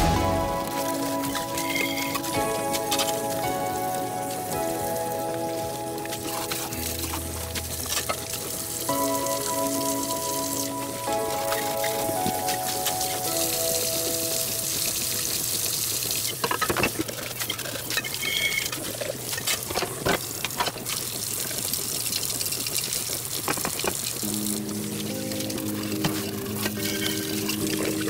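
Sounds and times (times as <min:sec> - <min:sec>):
background music: 0:00.0 - 0:16.2, 0:24.2 - 0:28.0
faucet water running into sink: 0:06.0 - 0:28.0.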